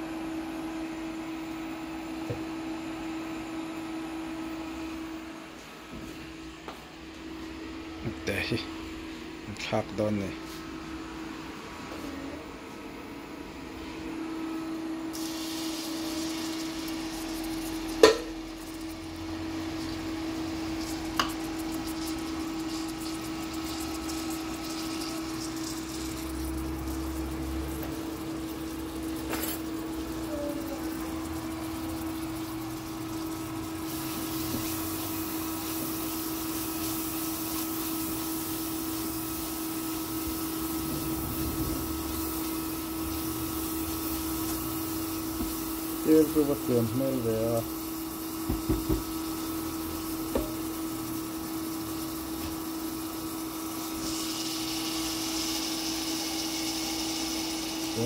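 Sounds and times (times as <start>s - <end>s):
kitchen hum and hiss: 0.0s - 58.0s
utensil or pan clatter: 17.8s - 18.7s.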